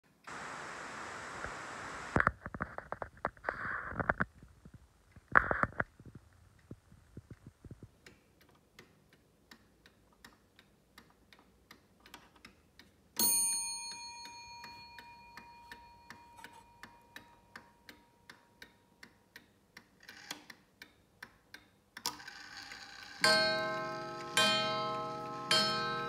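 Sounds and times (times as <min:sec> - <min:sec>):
clock ticking: 0:07.9 - 0:26.0
clock striking ringing note: 0:23.2 - 0:26.0.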